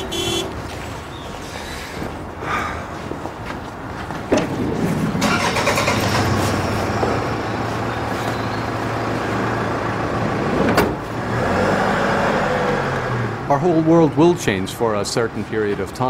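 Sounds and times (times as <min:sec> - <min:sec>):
motor vehicle running: 0:02.9 - 0:14.2.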